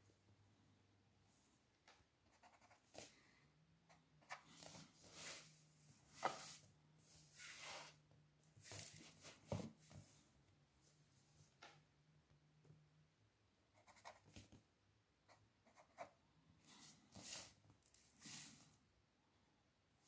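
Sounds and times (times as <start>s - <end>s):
pencil scratching lines: 2.3s - 3.1s, 13.8s - 14.4s, 15.3s - 16.2s.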